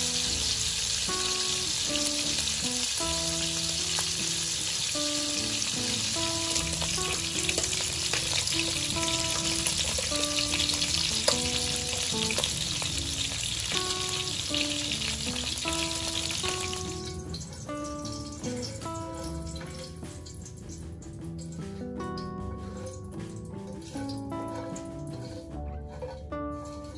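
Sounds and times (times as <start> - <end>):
light background music: 0.0 - 26.9
ribs sizzling in oil: 0.0 - 26.9
tongs clacking: 6.3 - 14.0, 15.4 - 26.9.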